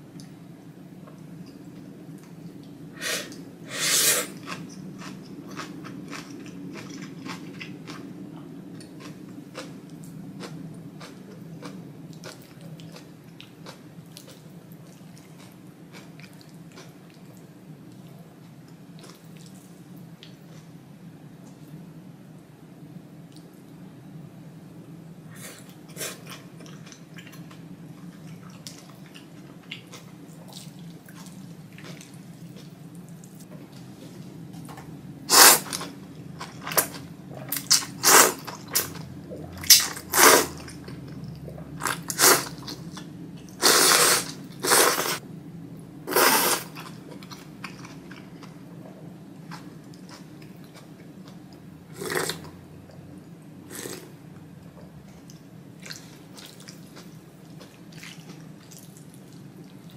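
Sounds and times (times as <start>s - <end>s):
person slurping noodles: 3.0s - 4.4s, 43.6s - 45.2s, 46.1s - 46.7s
person chewing: 3.0s - 8.1s.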